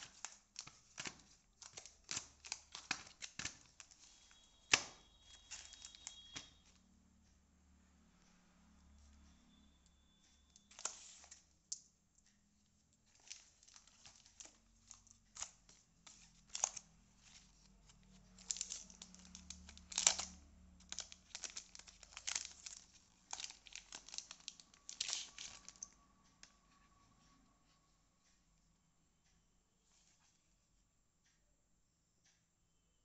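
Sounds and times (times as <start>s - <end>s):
cellophane crinkling and tearing: 0.0s - 6.7s, 10.6s - 11.4s, 13.0s - 26.0s.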